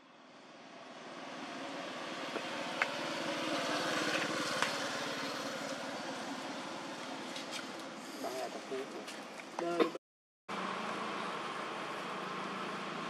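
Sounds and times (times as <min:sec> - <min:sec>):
vehicle engine passing: 0:00.8 - 0:07.3.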